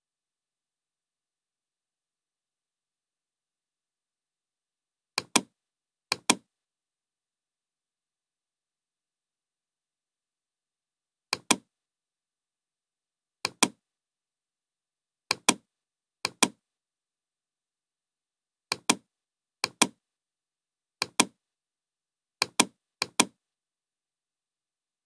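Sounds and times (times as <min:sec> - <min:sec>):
computer mouse button clicks: 0:05.2 - 0:05.5, 0:06.1 - 0:06.4, 0:11.3 - 0:11.6, 0:13.5 - 0:13.8, 0:15.3 - 0:15.6, 0:16.3 - 0:16.6, 0:18.7 - 0:19.0, 0:19.6 - 0:20.0, 0:21.0 - 0:21.4, 0:22.4 - 0:23.4.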